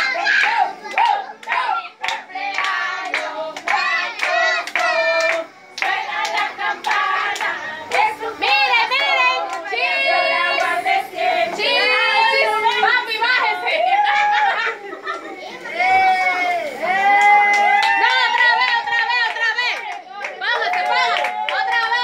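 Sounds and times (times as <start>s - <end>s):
group singing a celebration song: 0.0s - 14.0s
hands clapping: 0.4s - 8.6s.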